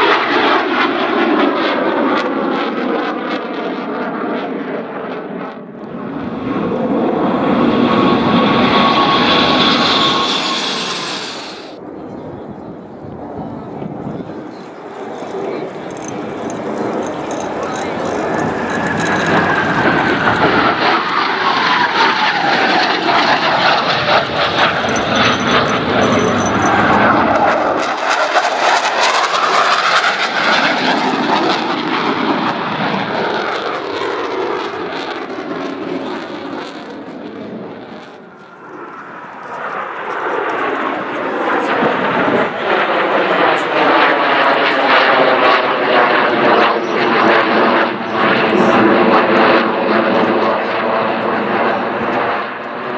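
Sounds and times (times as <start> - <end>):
jet engine whine passing: 0.0 - 52.9
jet formation approaching: 0.0 - 52.9.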